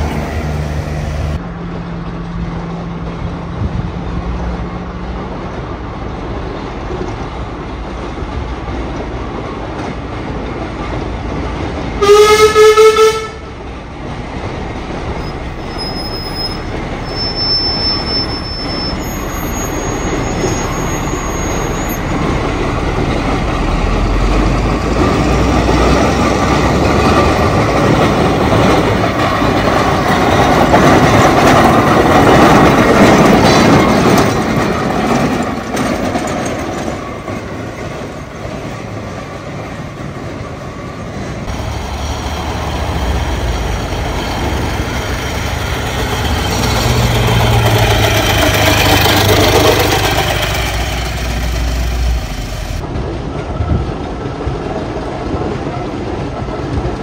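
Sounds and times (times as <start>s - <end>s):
steam traction engine running: 41.1s - 55.4s.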